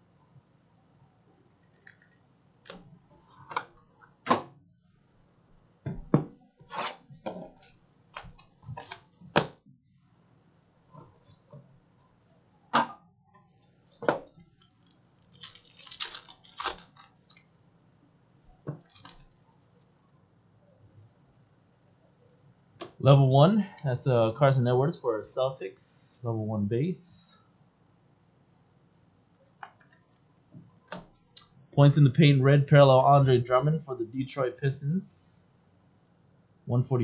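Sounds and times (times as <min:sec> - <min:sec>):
foil pack crinkling: 0:14.5 - 0:17.4, 0:18.8 - 0:19.4.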